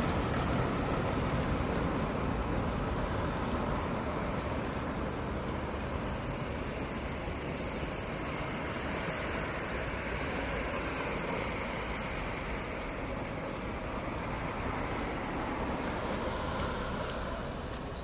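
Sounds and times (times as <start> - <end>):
street traffic noise: 0.0 - 18.0
car passing close by: 10.1 - 18.0.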